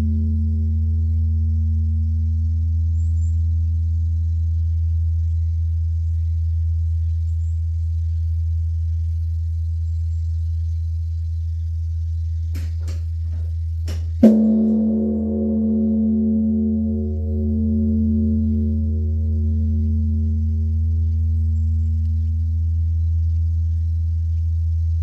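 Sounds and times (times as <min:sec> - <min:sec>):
large bronze bell ringing: 0:00.0 - 0:02.2, 0:12.6 - 0:22.7
bell struck with loud blow: 0:14.2 - 0:21.6.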